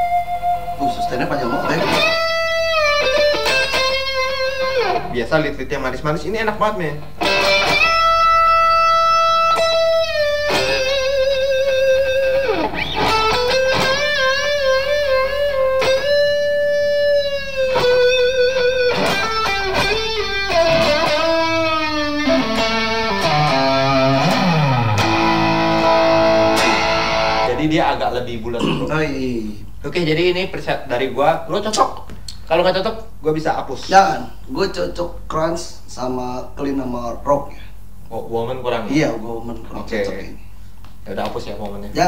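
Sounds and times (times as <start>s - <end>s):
electric guitar solo: 0.0s - 5.1s, 7.2s - 27.6s.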